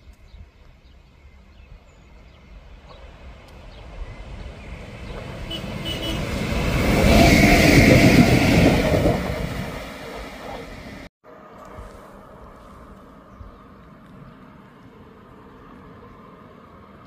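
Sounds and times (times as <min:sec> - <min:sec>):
electric locomotive passing: 0:02.4 - 0:13.9.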